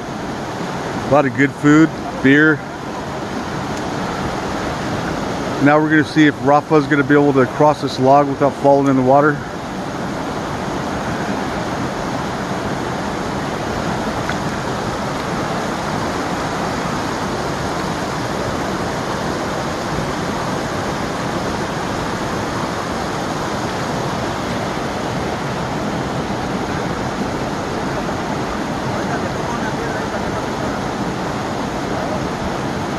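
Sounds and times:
creek rushing over rocks: 0.0 - 32.9.

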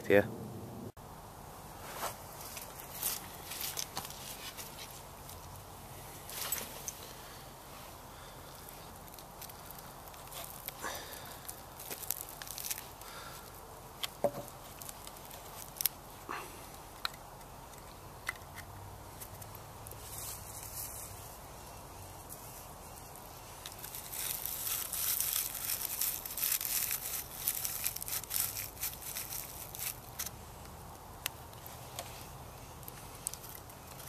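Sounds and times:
bark rustling and crackling: 8.2 - 34.0.

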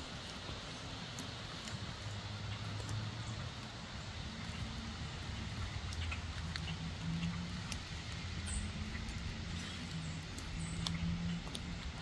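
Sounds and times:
low engine hum: 0.0 - 12.0
faint sharp clicks: 1.0 - 1.8, 2.5 - 3.8, 5.7 - 12.0.

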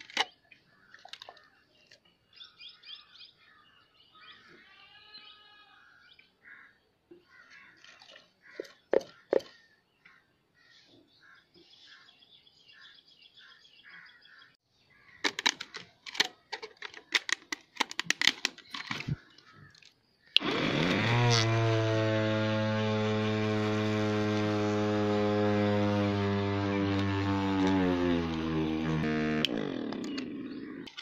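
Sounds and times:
bottle handling clicks and knocks: 8.6 - 9.5
blender motor whining: 20.4 - 31.0.

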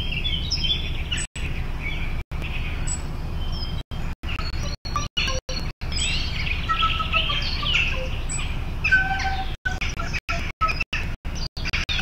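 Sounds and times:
woodwind imitating birdsong: 3.6 - 11.1.

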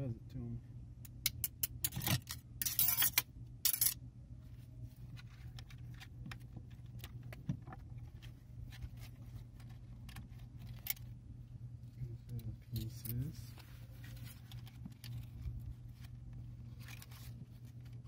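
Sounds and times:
steel parts clinking: 1.2 - 4.0.

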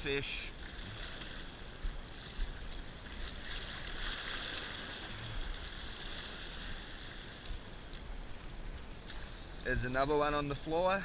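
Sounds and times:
water sloshing against rocks: 0.0 - 11.0
faint ticks: 3.8 - 5.6.

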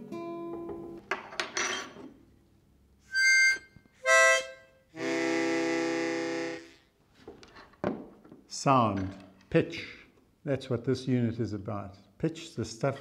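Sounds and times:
harmonica playing: 3.1 - 6.9.

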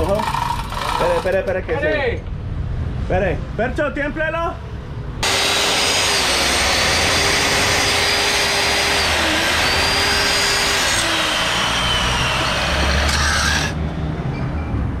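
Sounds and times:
angle grinder cutting steel: 5.2 - 13.8.

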